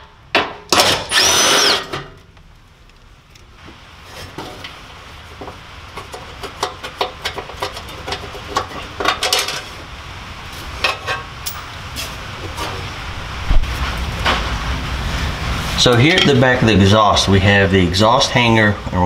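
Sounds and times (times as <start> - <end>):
sheet metal clattering and scraping: 5.4 - 9.8.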